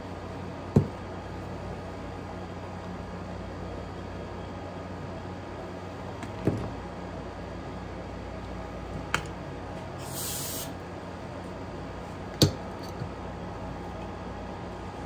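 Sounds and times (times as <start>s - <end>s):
steady low hum: 0.0s - 15.0s
short spray hiss: 10.0s - 10.8s.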